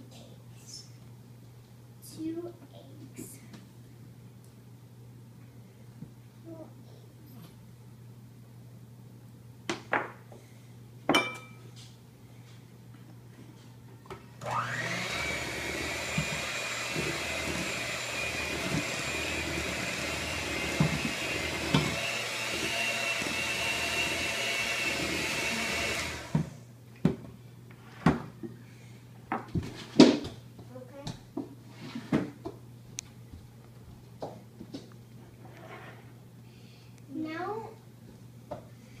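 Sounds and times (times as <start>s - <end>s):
electric hand mixer whine: 14.4s - 26.6s.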